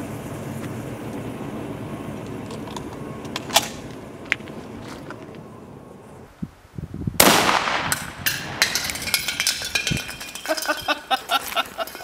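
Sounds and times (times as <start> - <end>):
rifle shots: 7.2 - 9.1
metallic clattering with ringing: 8.2 - 12.0.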